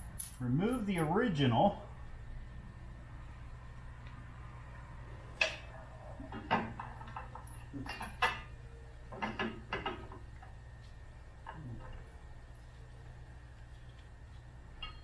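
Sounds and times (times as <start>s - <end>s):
metal clinks and clanks: 0.0s - 1.1s, 6.3s - 8.5s
low hum: 0.0s - 15.0s.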